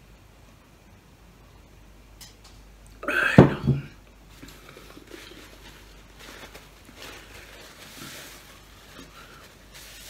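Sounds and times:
paper napkin rustling: 0:04.3 - 0:10.0.

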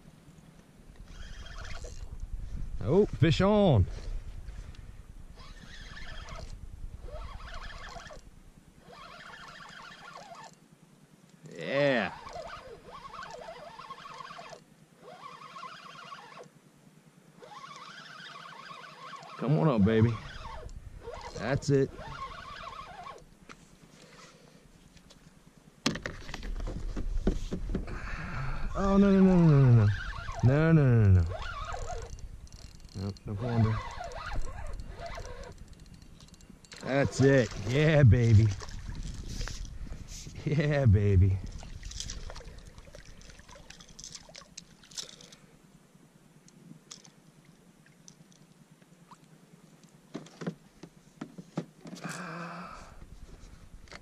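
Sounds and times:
wind rumble on microphone: 0:01.0 - 0:08.6, 0:26.4 - 0:35.8, 0:37.1 - 0:42.8
light knocks and splashes: 0:36.7 - 0:39.7, 0:41.5 - 0:45.3.

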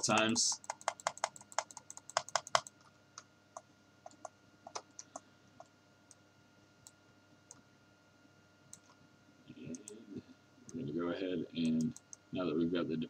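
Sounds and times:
computer mouse clicks: 0:00.0 - 0:06.2, 0:08.7 - 0:09.0, 0:11.6 - 0:12.2.

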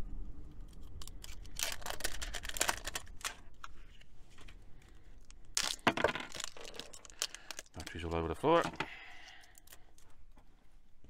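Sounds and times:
batteries clicking and clattering: 0:00.6 - 0:04.1, 0:05.2 - 0:10.1.

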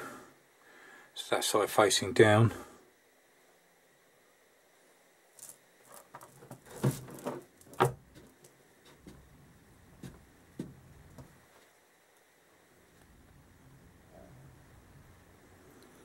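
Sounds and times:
small metal parts clicking: 0:05.4 - 0:07.8.

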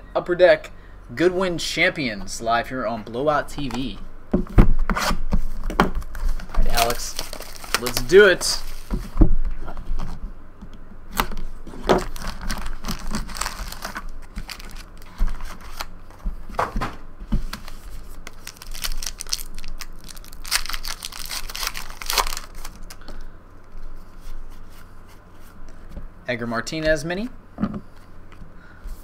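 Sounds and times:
wrappers crinkling and tearing: 0:06.5 - 0:08.9, 0:11.7 - 0:16.0, 0:17.6 - 0:23.0.

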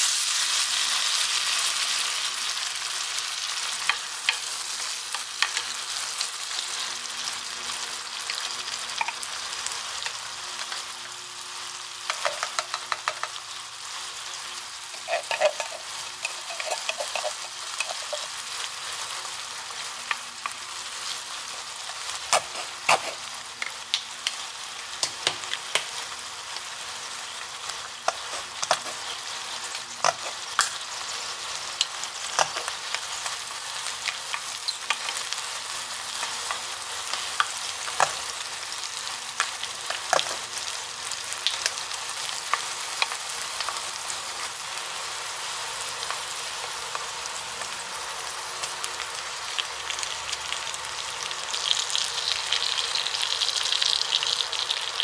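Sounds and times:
food sizzling in a pan: 0:00.0 - 0:55.0
spoon clicking against pan: 0:12.1 - 0:13.4.

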